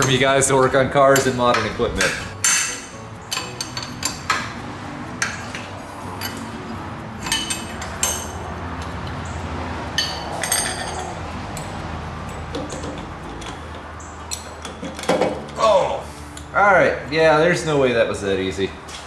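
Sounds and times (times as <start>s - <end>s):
wrench metallic clinks: 1.1s - 4.5s, 6.2s - 15.6s.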